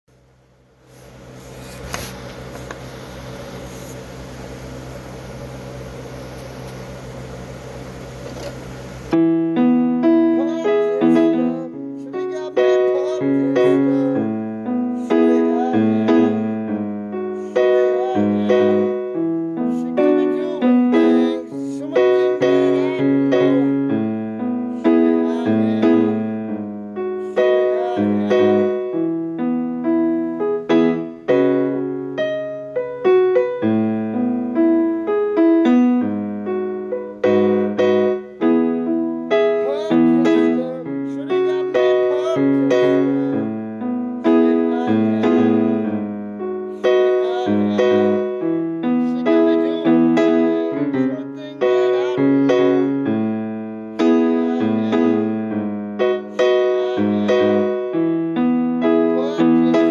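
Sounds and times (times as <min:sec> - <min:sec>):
steady hiss and low hum: 0:00.1 - 0:09.2
electronic keyboard playing chords: 0:02.4 - 0:59.9.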